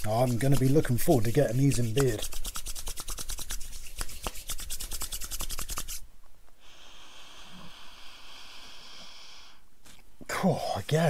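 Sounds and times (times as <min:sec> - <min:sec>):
palms rubbing together: 0:00.0 - 0:06.1
breath in through the nose: 0:06.6 - 0:09.6.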